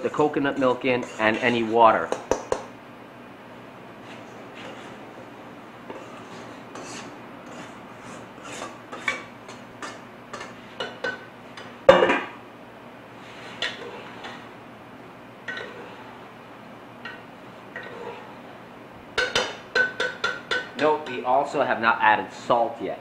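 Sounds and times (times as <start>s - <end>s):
metal spoon scraping metal bowl: 0.0s - 2.3s, 5.9s - 10.9s, 15.5s - 16.2s, 17.7s - 18.4s.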